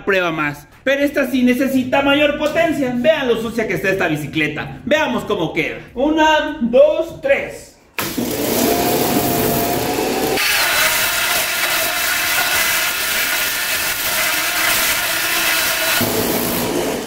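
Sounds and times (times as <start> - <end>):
pressure washer motor whining: 8.0 - 17.0.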